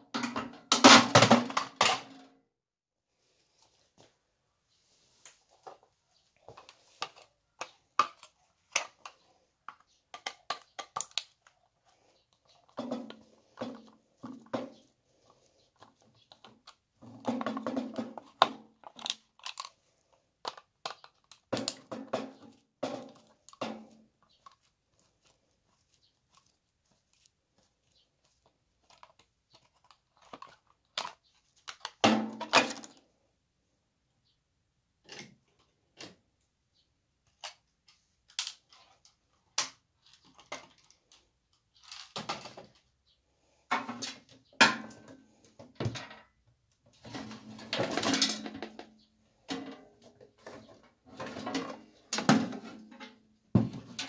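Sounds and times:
clicks and knocks of plastic and metal: 6.4 - 19.8, 20.4 - 24.7, 28.8 - 33.0, 37.2 - 42.9.

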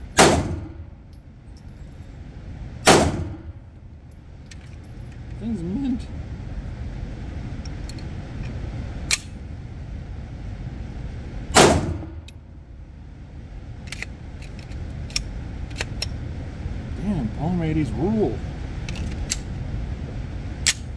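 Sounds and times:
pistol shot with echo: 0.2 - 0.8, 2.8 - 3.5, 11.6 - 12.2
pistol handling clicks: 9.1 - 9.4, 13.9 - 16.2, 20.6 - 20.9.

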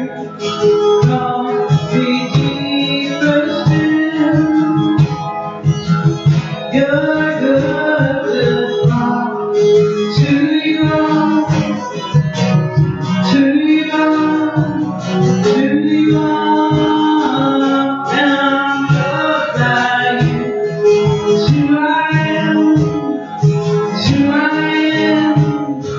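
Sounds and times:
singing: 0.0 - 5.1, 13.2 - 25.9
acoustic guitar strummed: 0.0 - 25.9.

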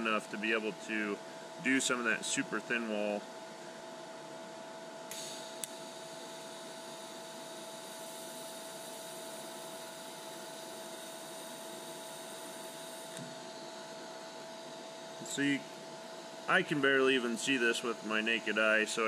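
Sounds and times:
welder humming with fan: 0.0 - 19.0
faint welding arc hiss: 4.9 - 19.0
click: 5.1 - 5.8.

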